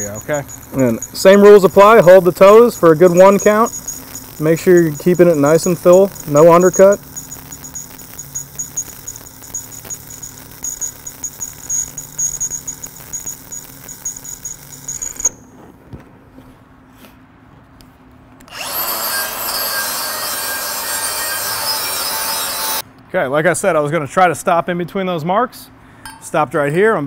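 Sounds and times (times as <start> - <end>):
angle grinder grinding metal: 0.0 - 15.3, 18.5 - 22.8
arc welding crackling and sputtering: 0.0 - 15.4, 18.5 - 22.8.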